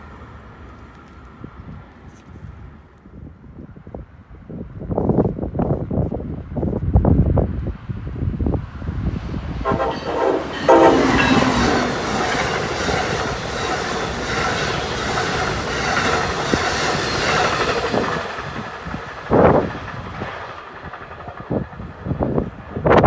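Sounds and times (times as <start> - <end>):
train wheels clattering on rails: 9.3 - 23.0
train horn blasts: 9.6 - 13.0.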